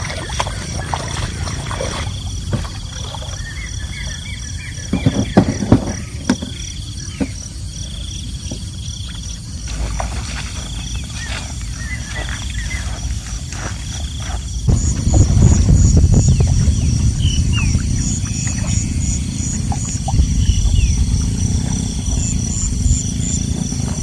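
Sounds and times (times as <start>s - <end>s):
knocks and splashes: 0.0s - 3.6s, 4.9s - 6.6s, 8.4s - 11.0s, 13.6s - 24.0s
feet wading through water: 0.0s - 4.2s, 9.0s - 24.0s
birds calling: 0.0s - 24.0s
insects: 0.0s - 24.0s.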